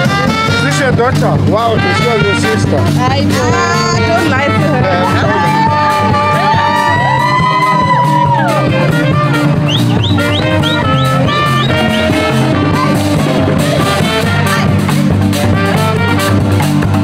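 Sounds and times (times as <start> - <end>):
upbeat music with drum beat: 0.0 - 17.0.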